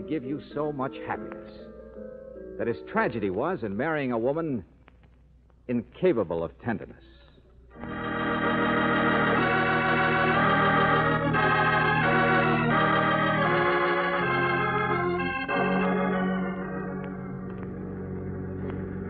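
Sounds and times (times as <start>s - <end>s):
organ chords: 7.7s - 19.0s.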